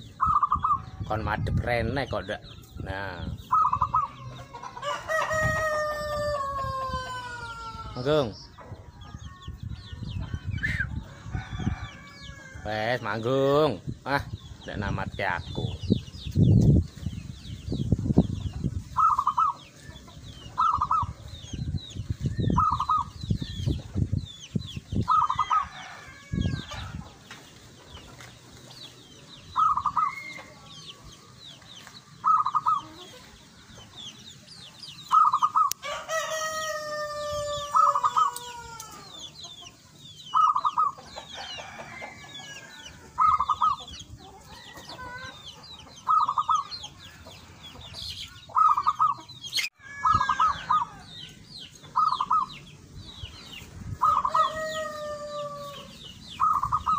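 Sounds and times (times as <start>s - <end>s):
small birds chirping faintly: 0.0s - 56.9s
rooster crowing: 4.4s - 8.0s, 11.0s - 12.8s, 25.1s - 27.0s, 35.6s - 39.2s, 49.7s - 51.2s, 54.0s - 56.0s.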